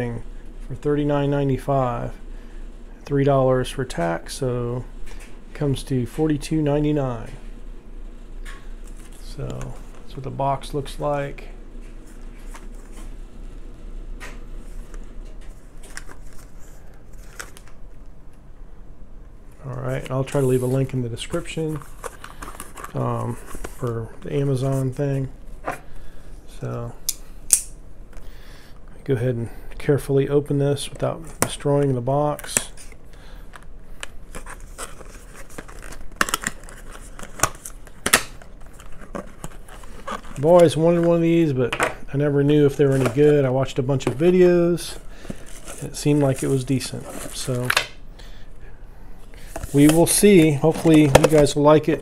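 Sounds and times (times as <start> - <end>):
cardboard tearing and crinkling: 34.3 - 41.1
cardboard box rustling in hands: 45.0 - 47.5.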